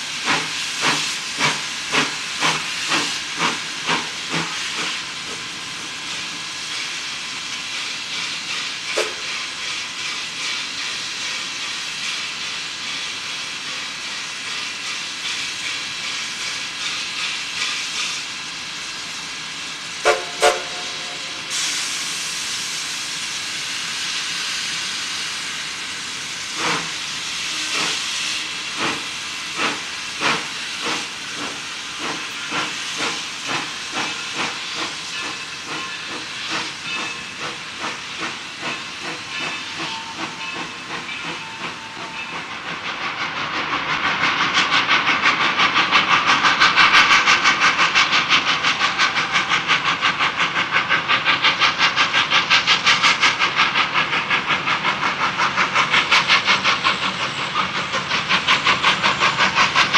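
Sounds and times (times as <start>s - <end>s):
steam hissing: 0.0s - 59.9s
steam whistle toots: 8.9s - 9.3s, 20.0s - 22.4s, 27.3s - 28.7s.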